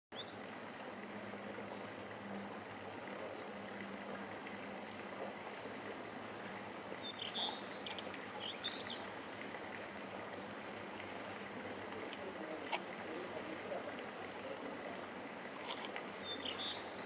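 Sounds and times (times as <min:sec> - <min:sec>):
bird chirping: 0:07.0 - 0:09.1, 0:15.6 - 0:17.0.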